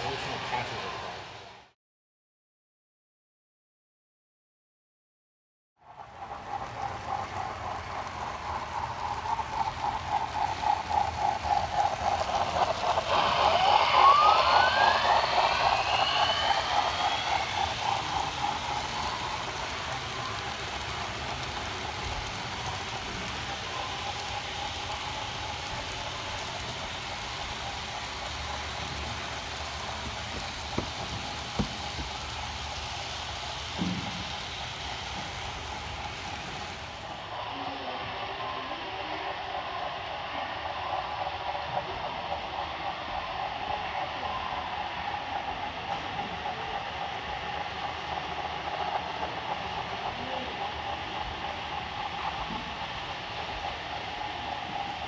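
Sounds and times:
model train hum: 0.0s - 1.8s, 5.8s - 55.0s
model train wheels clicking: 5.9s - 55.0s
rising whine: 6.1s - 38.8s.

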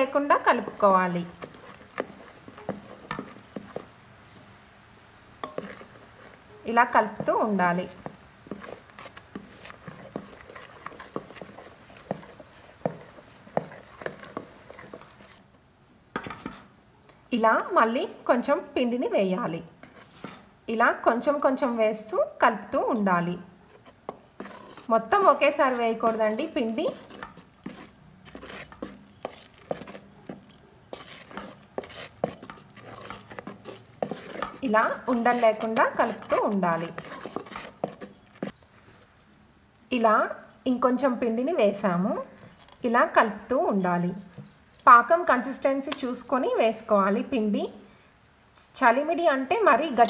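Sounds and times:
spoon scraping metal pot: 0.0s - 4.0s, 5.4s - 15.4s, 23.7s - 38.6s
wet squelching: 5.5s - 15.4s, 24.5s - 38.6s.

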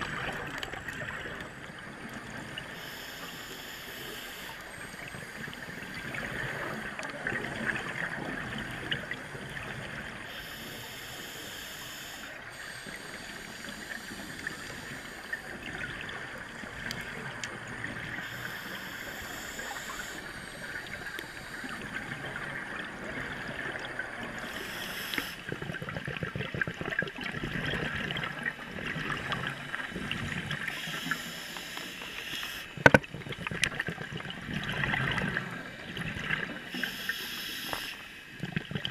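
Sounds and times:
bubbles gurgling: 0.0s - 2.7s, 5.0s - 10.2s, 25.4s - 31.2s, 32.6s - 36.9s, 38.3s - 38.9s
steady hiss: 2.6s - 6.0s, 10.2s - 15.6s, 18.1s - 22.0s, 24.4s - 25.5s, 30.7s - 33.0s, 35.4s - 38.4s
diver regulator breathing: 2.6s - 7.0s, 10.3s - 15.8s, 18.1s - 22.2s, 24.2s - 27.0s, 29.2s - 38.9s.

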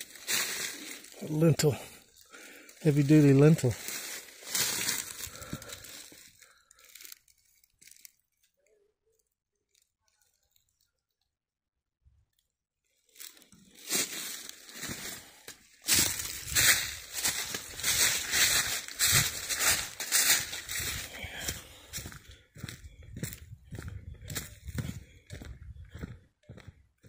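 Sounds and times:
footsteps crunching dry leaves: 0.0s - 8.1s, 13.1s - 26.1s.

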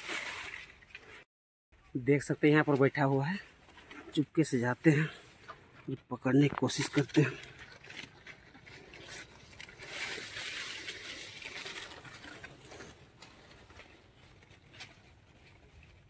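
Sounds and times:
maize leaves rustling: 6.4s - 16.0s.

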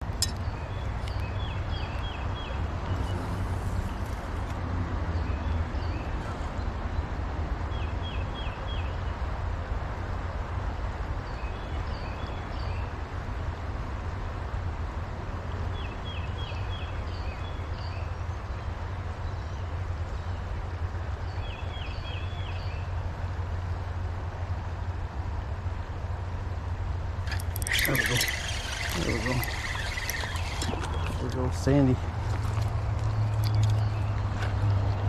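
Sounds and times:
high bird chirps: 27.3s - 31.7s
small bird singing: 27.3s - 32.0s.

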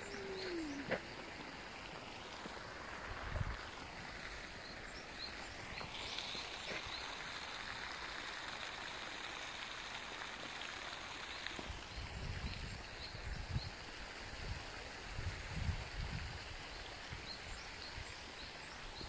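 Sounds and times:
small birds chirping: 0.0s - 2.7s, 3.6s - 7.2s
steady hiss: 0.0s - 11.8s.

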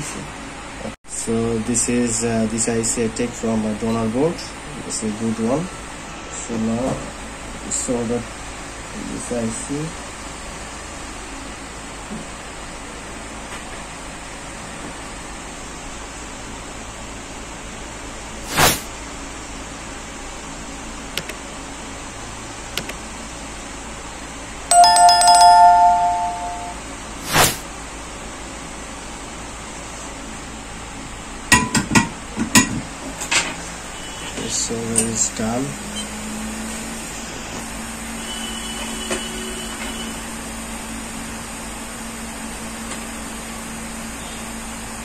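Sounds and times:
mechanical hum with hiss: 0.0s - 24.7s, 26.8s - 45.0s
mouse clicks: 21.2s - 21.4s, 22.8s - 23.0s
two-tone notification bell chime: 24.7s - 27.6s.

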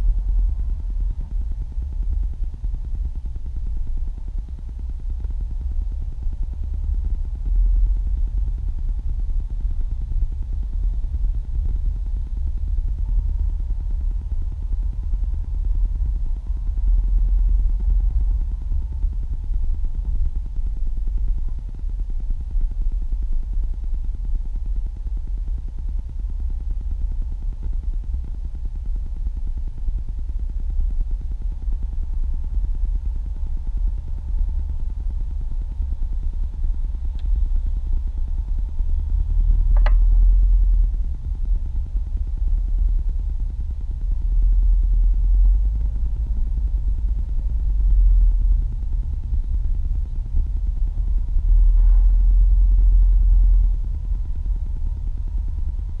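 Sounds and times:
car cabin rumble: 31.0s - 56.0s.

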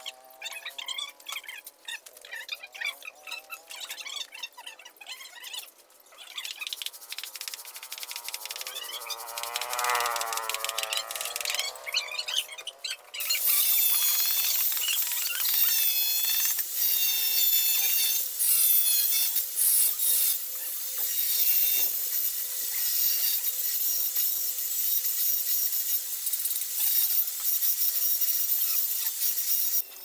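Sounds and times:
squeaks: 0.0s - 6.8s
wall being sanded and scraped: 13.2s - 30.0s.

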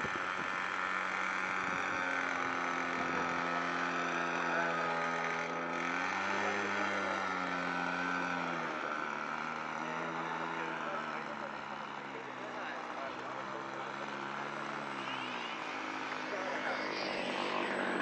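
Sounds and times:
model aircraft engine running: 0.0s - 18.0s.

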